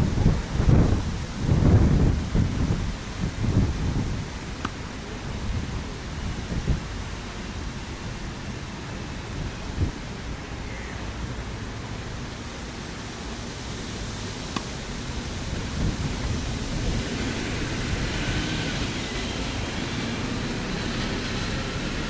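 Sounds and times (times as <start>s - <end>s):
rushing outdoor background noise: 0.0s - 22.0s
tennis racket hitting ball: 4.6s - 4.8s, 14.5s - 14.9s.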